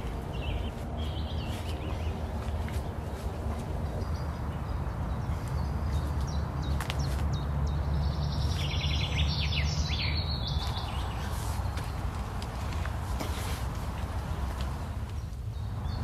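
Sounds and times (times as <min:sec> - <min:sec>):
bird chirping: 0:00.0 - 0:12.8.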